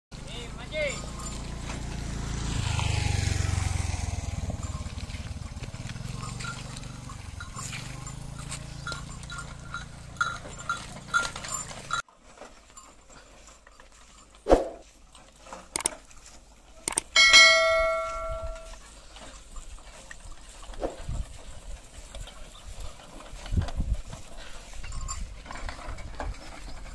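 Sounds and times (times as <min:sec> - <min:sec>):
bullock bells clinking: 0:00.2 - 0:14.4, 0:16.8 - 0:20.6, 0:21.9 - 0:26.9
bell ringing out clear: 0:00.7 - 0:01.9, 0:03.9 - 0:12.0, 0:17.1 - 0:18.8.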